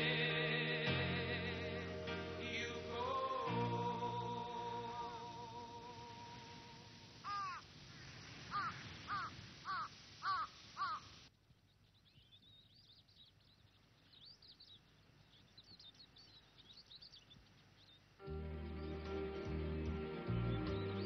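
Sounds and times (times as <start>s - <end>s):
crows cawing: 7.2s - 7.7s, 8.5s - 11.2s
small birds twittering: 7.2s - 19.1s, 20.3s - 21.0s.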